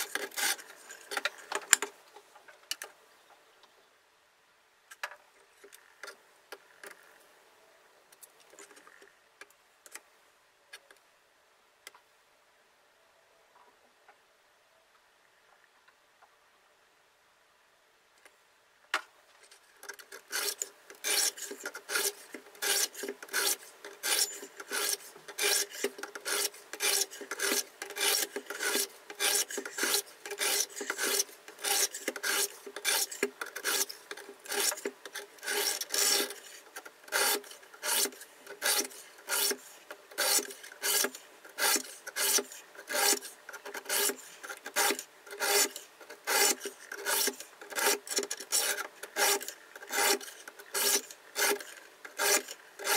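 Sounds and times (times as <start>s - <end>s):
sharpening stones scraping knife blade: 20.3s - 39.6s.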